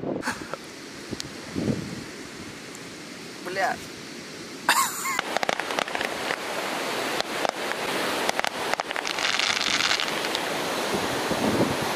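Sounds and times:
wind on microphone: 0:00.0 - 0:02.7, 0:05.2 - 0:11.9
ocean surf: 0:00.0 - 0:11.9
sharp pops: 0:04.8 - 0:10.5.

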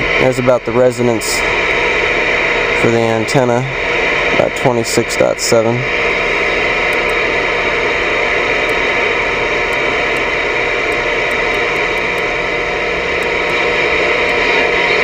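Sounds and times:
radio static hiss: 0:00.0 - 0:15.0
channel knob clicks: 0:06.9 - 0:07.2.

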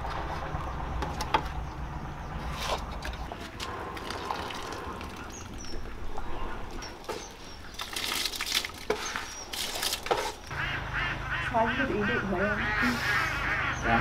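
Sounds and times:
fish slapping in a pot: 0:06.9 - 0:10.5.

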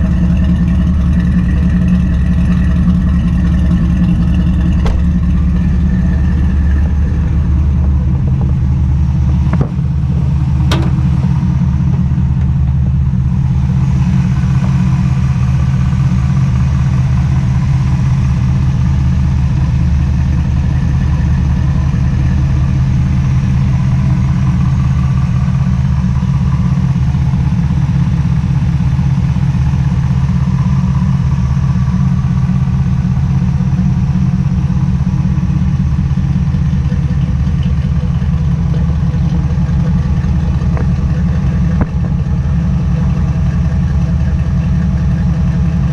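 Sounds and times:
car engine idling: 0:00.0 - 0:45.9.

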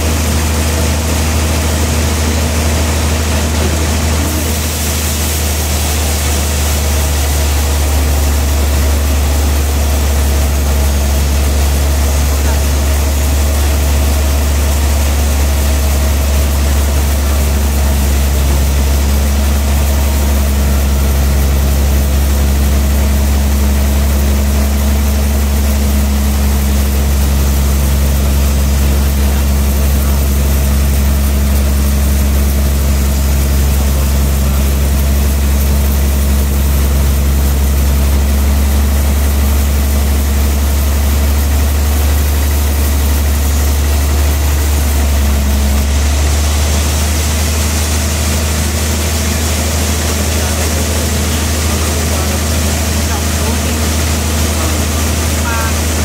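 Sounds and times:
band sawmill humming: 0:00.0 - 0:56.0.

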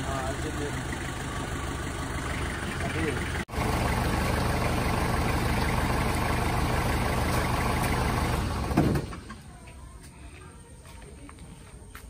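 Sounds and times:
car engine running: 0:00.0 - 0:09.4.

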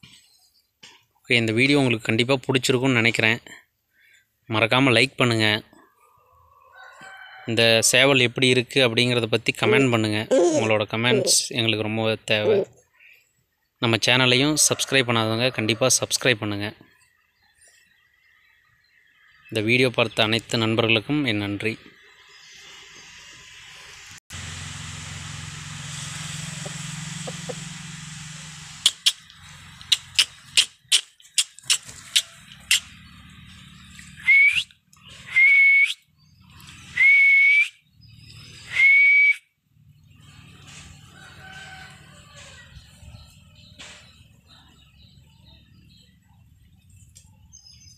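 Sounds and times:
falling whistles: 0:34.2 - 0:36.1, 0:36.7 - 0:39.5.

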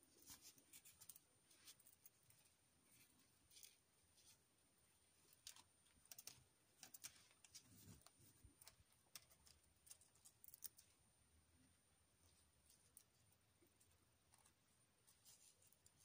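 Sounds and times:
wire and tape clicks and rustles: 0:00.1 - 0:04.4, 0:05.2 - 0:11.1.

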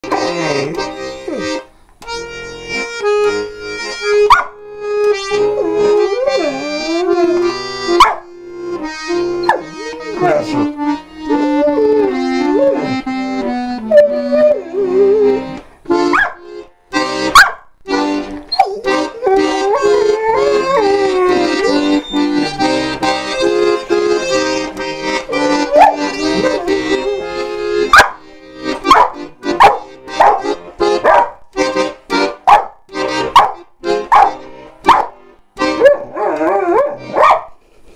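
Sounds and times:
accordion playing chords: 0:00.0 - 0:37.3
dog howling: 0:05.6 - 0:08.2, 0:09.4 - 0:10.7, 0:13.8 - 0:15.4, 0:18.5 - 0:22.6, 0:25.4 - 0:27.2, 0:35.8 - 0:37.4.

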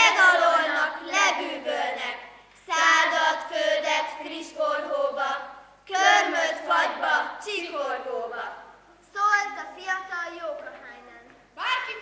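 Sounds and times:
girls chanting in unison: 0:00.0 - 0:08.7.

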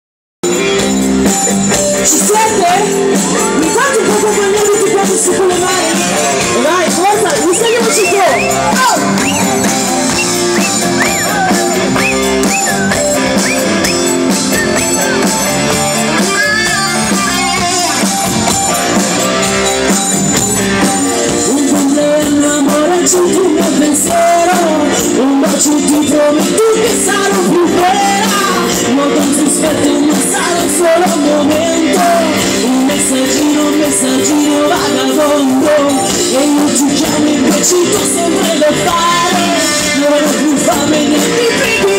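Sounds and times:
live band music: 0:00.4 - 0:41.9
woman singing into a microphone: 0:02.0 - 0:09.1, 0:21.4 - 0:41.9.

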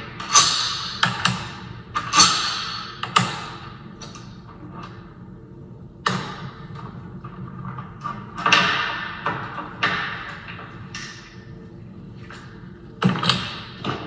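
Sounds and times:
metal lock parts clanking: 0:13.0 - 0:14.0.

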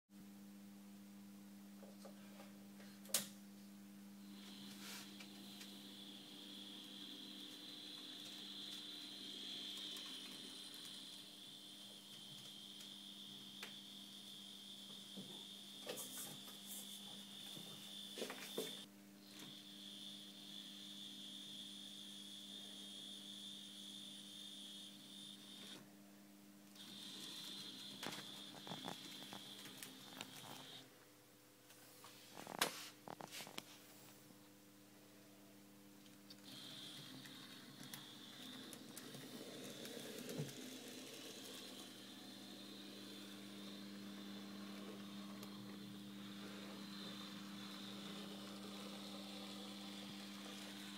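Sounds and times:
low electrical hum: 0:00.1 - 0:50.9
model locomotive motor whine: 0:04.2 - 0:25.8, 0:26.7 - 0:30.8, 0:36.4 - 0:50.9.

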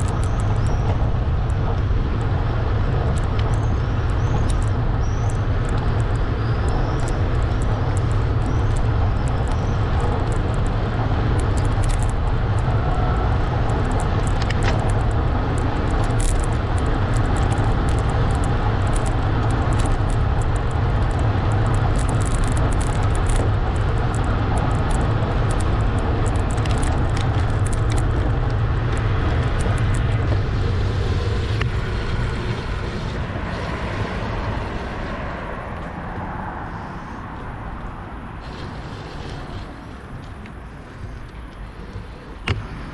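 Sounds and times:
small rattling clicks: 0:00.0 - 0:32.3
tyre rumble on asphalt: 0:00.0 - 0:36.0
wind noise on microphone: 0:00.0 - 0:42.9.

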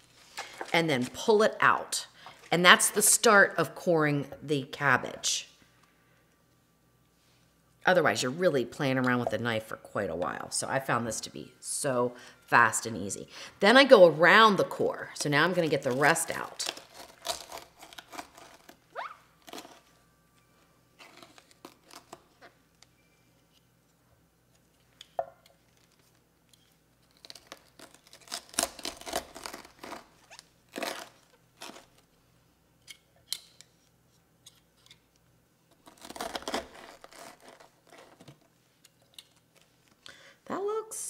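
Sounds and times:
corer crunching cabbage stalk: 0:15.8 - 0:19.8, 0:27.0 - 0:32.0, 0:35.8 - 0:38.4.

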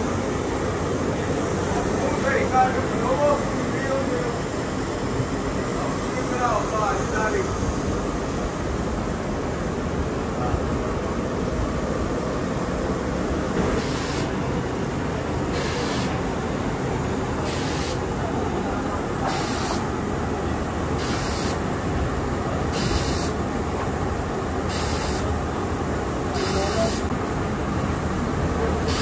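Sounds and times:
workshop noise: 0:13.5 - 0:21.8, 0:22.5 - 0:25.4, 0:26.2 - 0:27.2, 0:28.4 - 0:29.0
short hiss: 0:13.8 - 0:14.3, 0:15.5 - 0:16.1, 0:17.4 - 0:18.0, 0:19.2 - 0:19.8, 0:21.0 - 0:21.6, 0:22.7 - 0:23.4, 0:24.7 - 0:25.3.

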